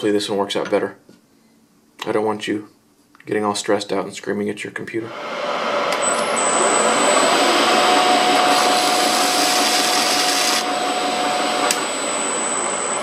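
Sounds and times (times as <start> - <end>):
metal lathe running with whine: 6.0 - 13.0.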